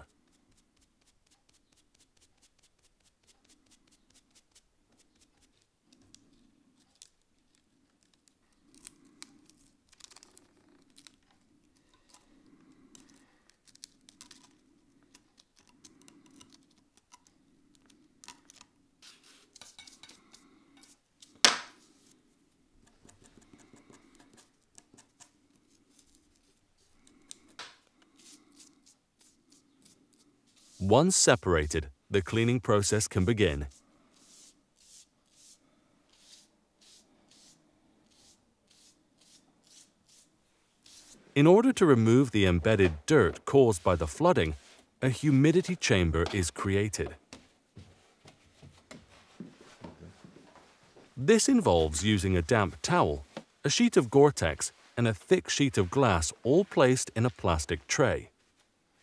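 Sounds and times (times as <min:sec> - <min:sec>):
scalpel scraping paper: 0:17.8 - 0:22.1, 0:22.8 - 0:30.8, 0:33.7 - 0:41.2
sponge rubbing: 0:19.0 - 0:19.8, 0:28.1 - 0:31.0, 0:33.7 - 0:41.4
soft brush sweeping: 0:29.2 - 0:31.0, 0:33.7 - 0:46.5, 0:52.0 - 0:58.7.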